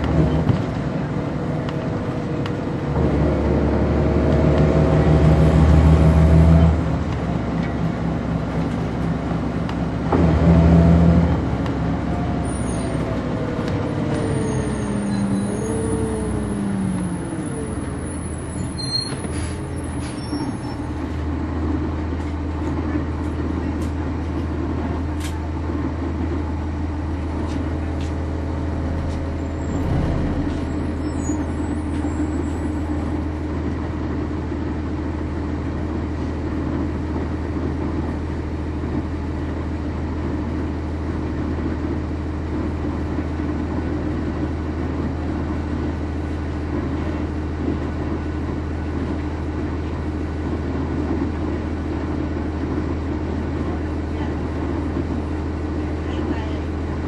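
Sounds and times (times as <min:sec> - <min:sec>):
bus diesel engine drone: 0:00.0 - 0:57.0
bump with faint squeaks: 0:12.2 - 0:21.1, 0:29.0 - 0:33.2.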